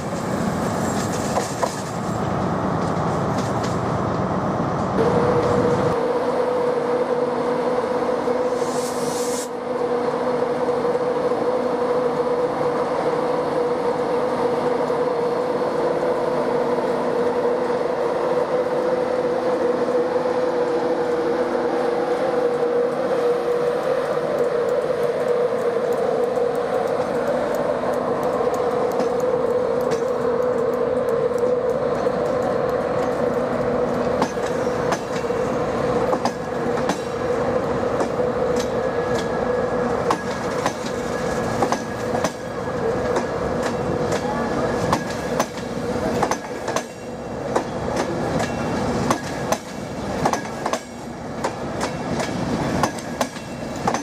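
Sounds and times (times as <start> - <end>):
diesel train rumbling: 0.0 - 54.0
electric train humming: 0.0 - 54.0
short hiss: 8.5 - 9.5.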